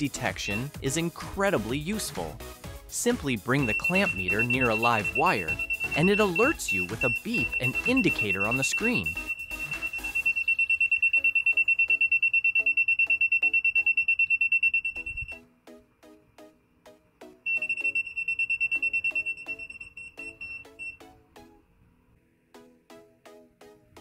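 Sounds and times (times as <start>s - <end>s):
rapid high-pitched alarm beeping: 3.6s - 15.4s, 17.5s - 20.9s.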